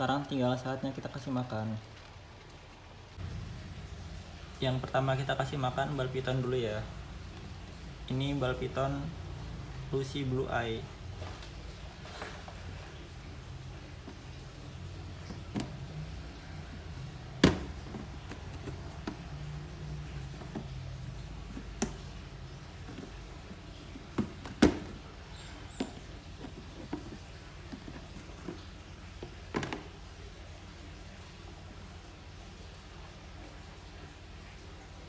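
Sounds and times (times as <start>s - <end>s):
plastic lid clicks and knocks: 29.5s - 29.9s.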